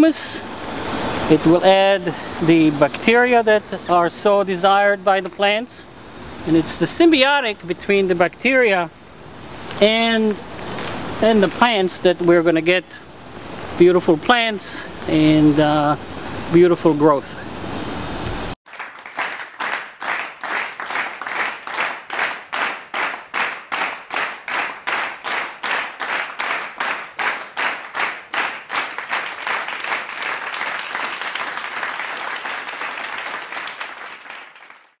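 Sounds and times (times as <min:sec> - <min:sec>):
continuous applause: 0:18.6 - 0:35.0
crowd clapping in rhythm: 0:18.6 - 0:35.0.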